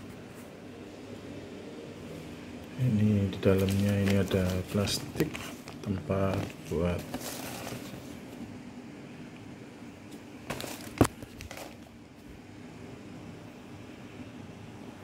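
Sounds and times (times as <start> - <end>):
steady low hum: 0.0 - 15.0
plastic bag crinkling: 3.3 - 8.2, 10.5 - 11.9.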